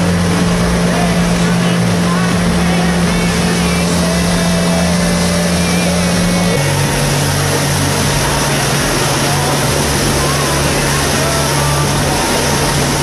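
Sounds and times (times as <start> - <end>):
motorboat engine running: 0.0 - 13.0
rush of wind and water: 0.0 - 13.0.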